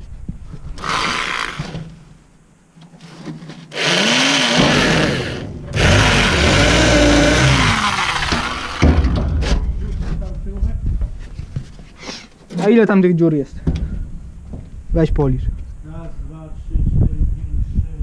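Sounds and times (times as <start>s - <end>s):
cordless drill drilling: 0.8s - 1.8s, 3.7s - 8.8s.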